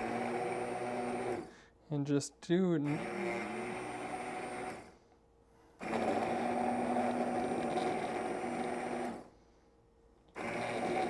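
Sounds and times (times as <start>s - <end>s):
immersion blender running in soup: 0.0s - 1.6s, 2.8s - 5.0s, 5.8s - 9.3s, 10.3s - 11.0s.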